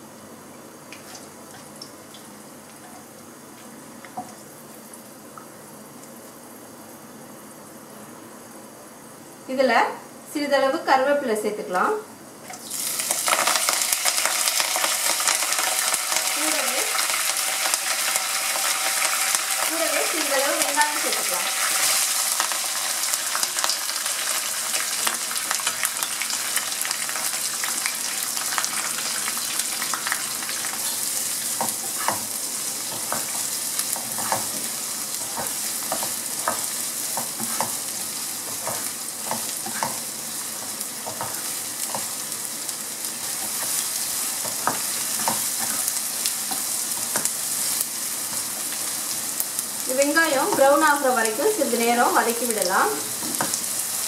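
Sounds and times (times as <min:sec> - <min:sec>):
onions sizzling in hot oil: 0:12.4 - 0:54.0.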